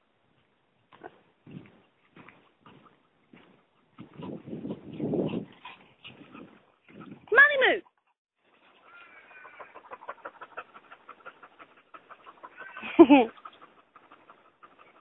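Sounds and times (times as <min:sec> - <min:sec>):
dogs panting: 0:01.0 - 0:15.0
dog yelping: 0:08.8 - 0:11.4, 0:12.0 - 0:13.7.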